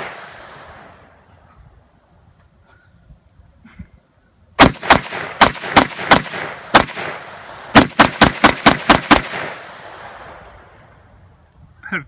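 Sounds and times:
rifle gunshots: 0.0s - 1.1s, 4.6s - 10.4s.

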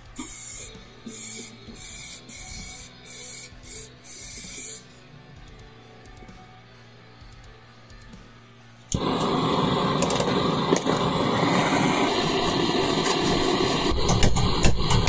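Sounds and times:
spray can hissing: 0.1s - 4.9s, 8.9s - 15.0s.

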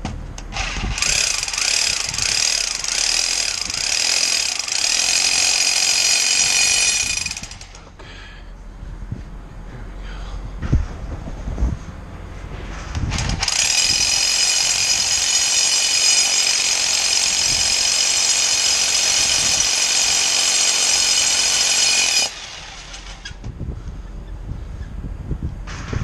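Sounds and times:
small motor whining: 0.5s - 7.8s, 13.1s - 23.5s.

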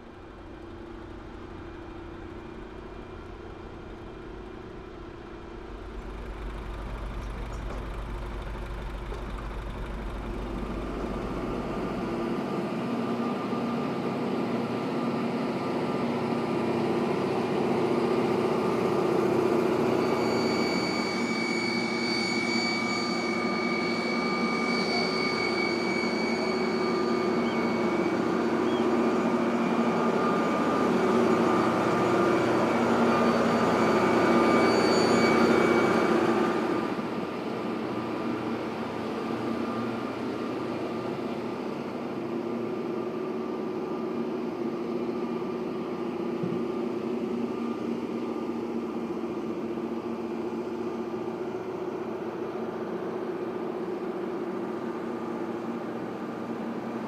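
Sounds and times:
jet turbine whine: 0.0s - 57.0s.

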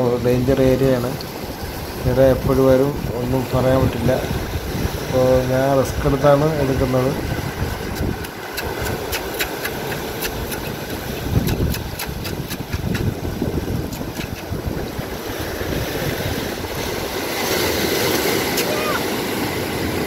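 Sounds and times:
sea surf washing over rocks: 0.0s - 20.0s
wind on microphone: 0.0s - 20.0s
mussels scraped off rock: 7.9s - 13.2s, 13.8s - 14.6s.

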